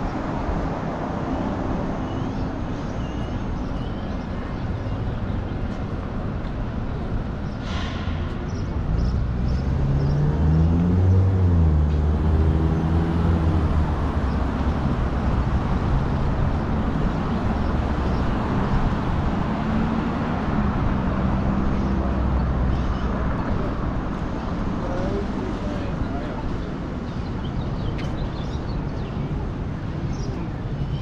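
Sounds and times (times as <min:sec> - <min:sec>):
continuous traffic noise: 0:00.0 - 0:31.0
vehicle engine accelerating: 0:08.8 - 0:16.2.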